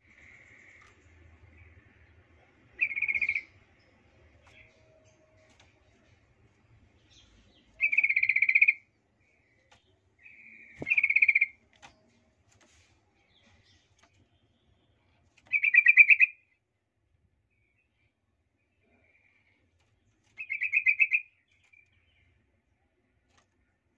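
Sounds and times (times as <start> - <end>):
bird chattering calls: 2.8 - 3.5, 7.8 - 8.8, 10.2 - 11.6, 15.5 - 16.4, 20.4 - 21.3.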